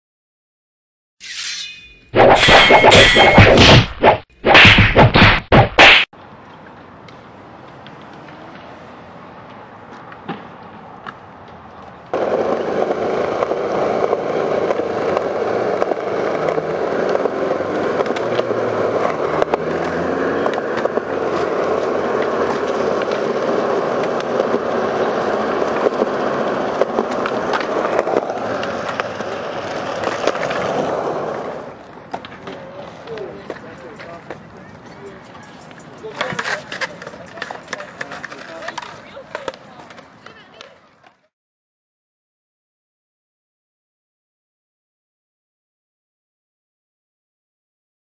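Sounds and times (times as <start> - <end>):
skateboard wheels rolling on concrete: 6.1 - 41.3.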